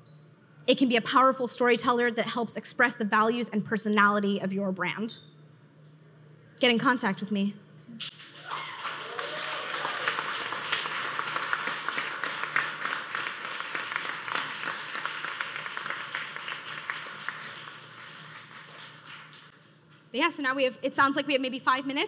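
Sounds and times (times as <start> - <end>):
audience applauding: 8.0 - 19.6.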